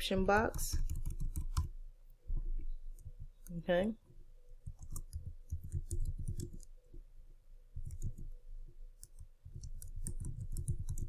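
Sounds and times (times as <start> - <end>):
keyboard typing: 0.0 - 1.8, 4.6 - 6.8, 7.7 - 8.4, 9.0 - 11.0.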